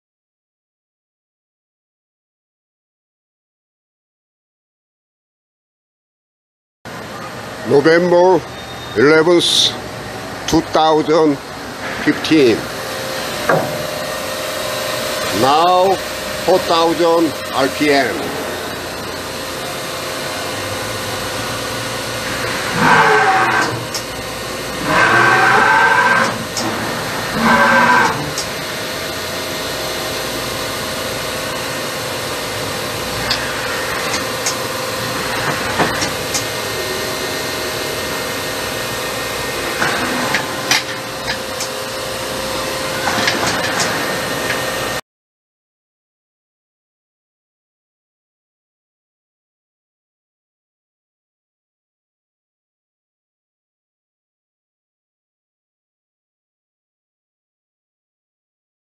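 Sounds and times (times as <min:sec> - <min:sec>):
machine spindle whine and hum: 0:06.9 - 0:45.0
machine axes whining: 0:12.2 - 0:45.0.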